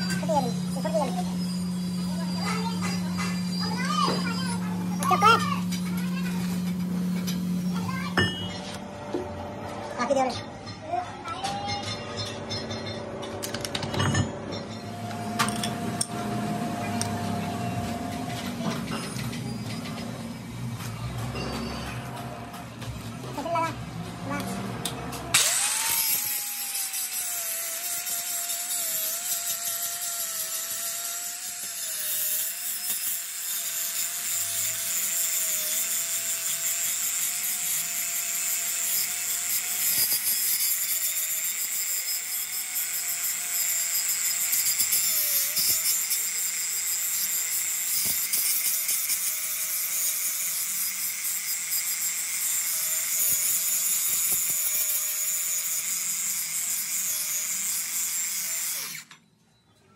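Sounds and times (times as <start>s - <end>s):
grinding disc hissing on metal: 0.0s - 8.8s, 24.2s - 59.1s
angle grinder motor whine: 0.0s - 9.3s, 14.5s - 59.3s.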